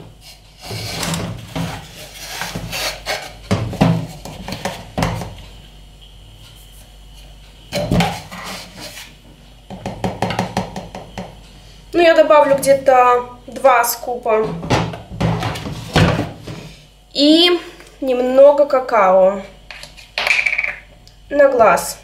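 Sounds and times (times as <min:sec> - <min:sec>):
powder scooping scrapes: 0:00.3 - 0:03.4.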